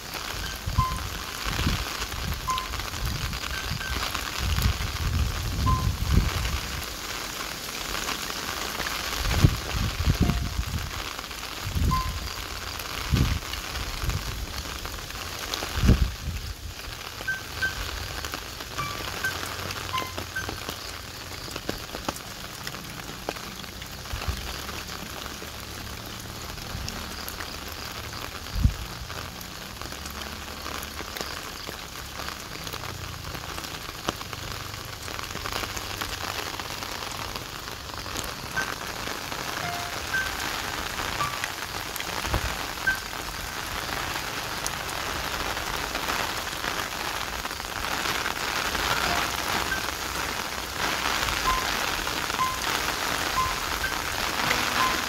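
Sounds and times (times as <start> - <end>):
rain pattering: 0.0 - 55.0
soft background music: 52.4 - 55.0.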